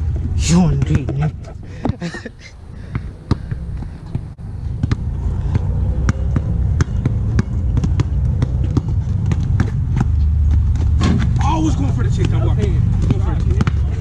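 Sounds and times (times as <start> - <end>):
basketball bouncing on tiles: 4.8 - 10.9.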